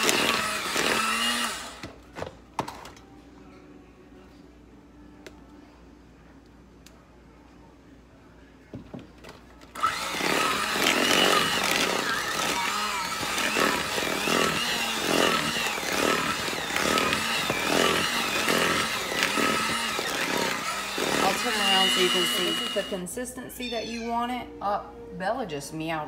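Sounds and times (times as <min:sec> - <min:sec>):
electric hand mixer whining: 0:00.0 - 0:01.9, 0:09.8 - 0:23.0.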